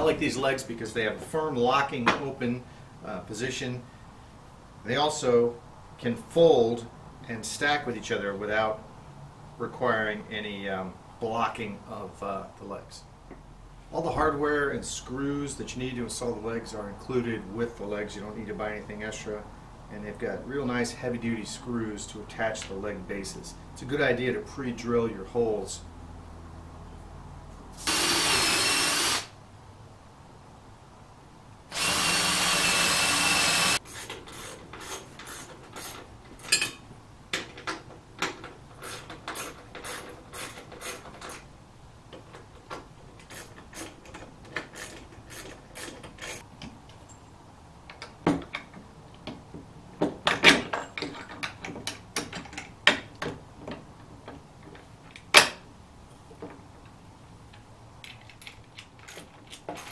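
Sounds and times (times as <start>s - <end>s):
cordless drill running: 27.8s - 29.4s, 31.7s - 34.1s
ratchet wrench clicking: 38.8s - 41.4s, 43.2s - 44.0s, 44.7s - 46.4s.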